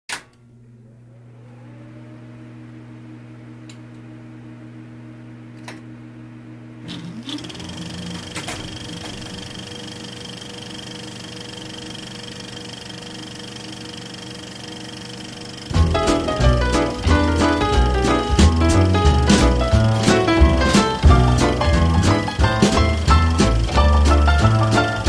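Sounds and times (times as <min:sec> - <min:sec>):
projector whine and rattle: 0:00.1 - 0:25.0
film projector running: 0:06.8 - 0:25.0.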